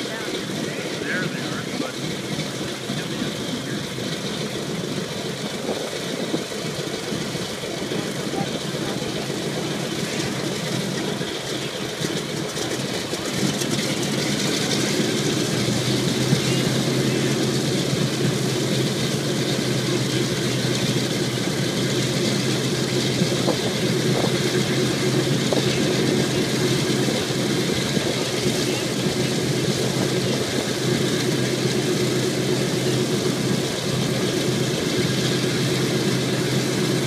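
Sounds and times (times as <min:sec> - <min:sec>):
piston aircraft engines running: 0:00.0 - 0:37.0.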